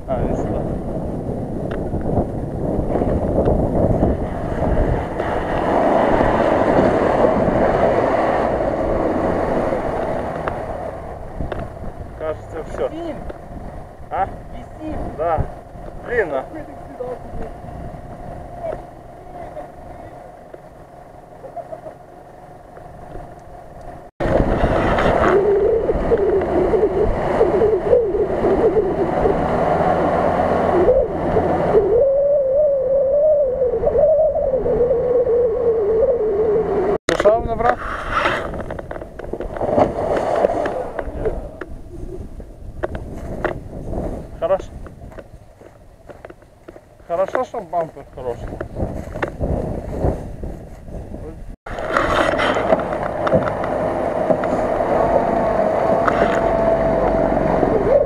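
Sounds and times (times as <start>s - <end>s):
steady rumbling noise: 0.0s - 58.0s
truck engine under load: 0.8s - 12.2s, 51.7s - 58.0s
tyres churning through mud: 4.0s - 14.0s, 21.0s - 31.7s, 37.2s - 41.7s, 51.7s - 58.0s
motor whining under load: 51.7s - 58.0s.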